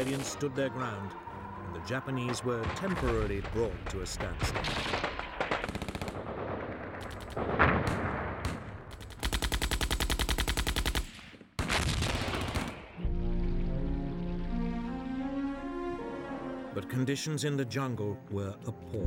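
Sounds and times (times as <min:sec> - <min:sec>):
gunshots: 0:02.3 - 0:13.0
machine-gun burst: 0:04.4 - 0:12.9
low slow string music: 0:13.0 - 0:19.0.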